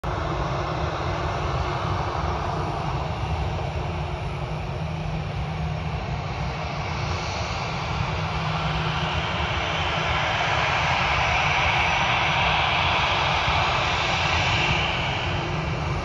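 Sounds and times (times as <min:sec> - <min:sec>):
jet engines at taxi thrust: 0:00.0 - 0:16.0.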